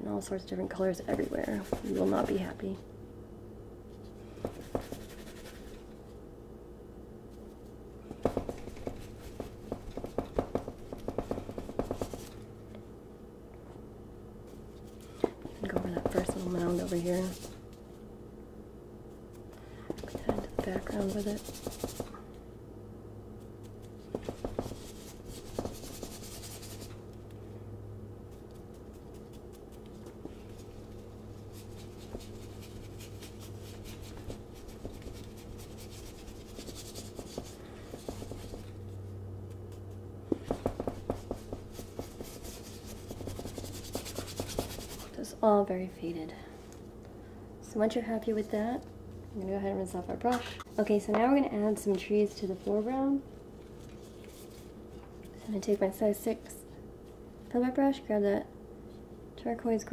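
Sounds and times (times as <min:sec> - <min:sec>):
steady low hum: 0:00.0 - 0:59.9
paintbrush scrubbing on canvas: 0:01.1 - 0:02.4, 0:04.0 - 0:06.0, 0:08.3 - 0:12.4, 0:15.6 - 0:17.6, 0:20.1 - 0:22.1, 0:23.6 - 0:27.0, 0:28.3 - 0:38.9, 0:40.3 - 0:45.2
paintbrush tapping on canvas: 0:04.4 - 0:05.2, 0:08.2 - 0:12.3, 0:15.2 - 0:17.4, 0:24.1 - 0:26.0, 0:37.1 - 0:38.7, 0:40.3 - 0:42.6.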